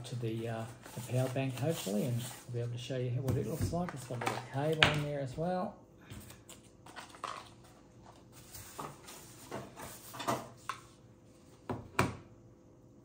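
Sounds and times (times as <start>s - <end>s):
packaging rustles: 0.1s - 2.5s.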